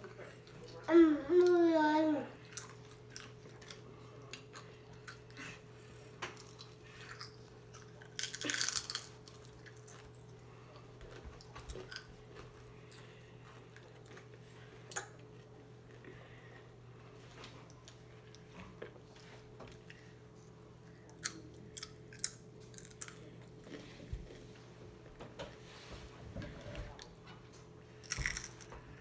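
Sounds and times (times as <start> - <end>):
faint steady hum: 0.0 - 29.0
chewing clicks and crackles: 2.4 - 5.4, 6.3 - 15.3, 21.0 - 23.8, 28.0 - 28.8
loud crunch of a bite: 6.4 - 10.1, 28.0 - 28.7.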